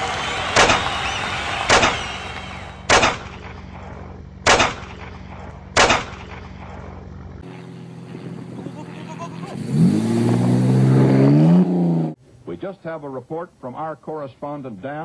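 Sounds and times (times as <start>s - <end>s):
crowd noise: 0.0s - 2.9s
single gunshots: 0.5s - 1.0s, 1.6s - 2.2s, 2.8s - 3.5s, 4.4s - 5.1s, 5.8s - 6.4s.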